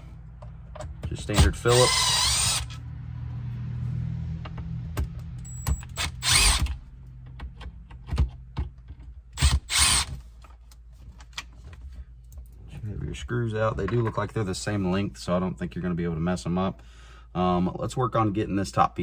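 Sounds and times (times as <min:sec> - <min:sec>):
cordless screwdriver running: 0:01.6 - 0:02.8, 0:05.8 - 0:06.8, 0:09.4 - 0:10.1.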